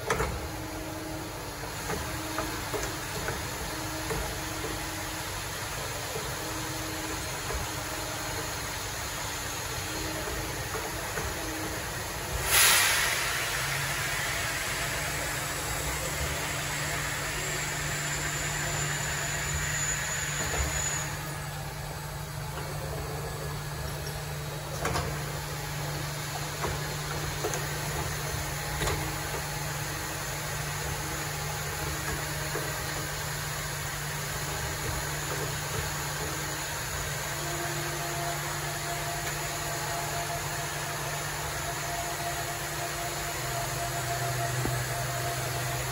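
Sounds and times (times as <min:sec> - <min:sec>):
burst of hiss: 0:12.3 - 0:21.2.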